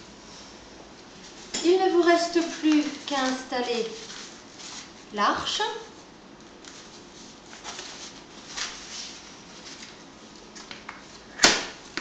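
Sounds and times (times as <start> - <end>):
fabric rustling: 1.0 - 10.6.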